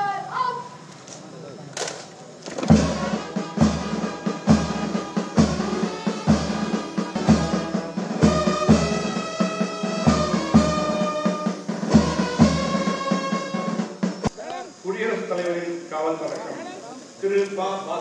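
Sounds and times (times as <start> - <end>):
bass drum strikes: 2.6 - 14.3
brass band playing: 2.6 - 14.3.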